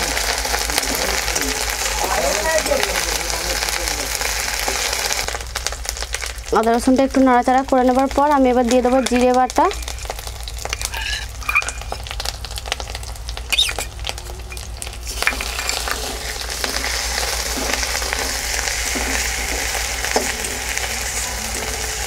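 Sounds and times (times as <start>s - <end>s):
paste sizzling in oil: 0.0s - 22.0s
spatula scraping a pan: 8.8s - 12.2s, 15.1s - 22.0s.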